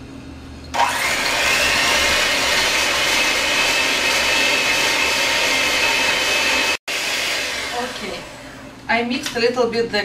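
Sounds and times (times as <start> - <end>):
electric hand mixer motor: 0.8 - 8.9.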